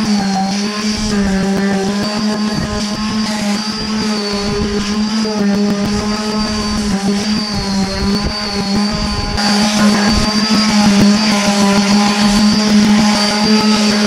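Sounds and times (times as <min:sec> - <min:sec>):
orbital sander whining: 0:00.0 - 0:14.0.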